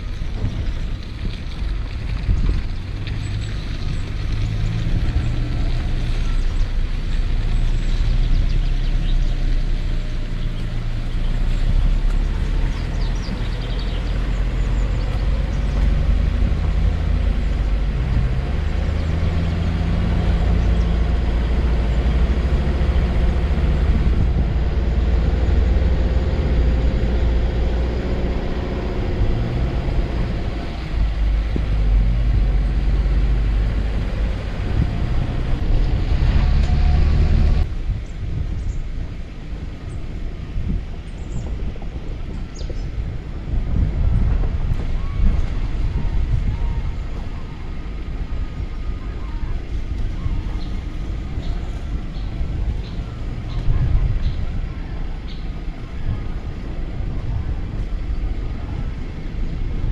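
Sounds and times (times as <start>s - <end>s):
car engine and tyre rumble: 0.0s - 59.9s.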